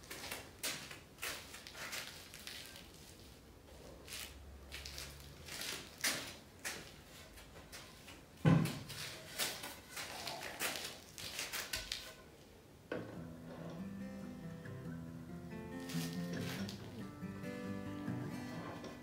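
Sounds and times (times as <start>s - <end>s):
board thud: 8.4s - 8.9s.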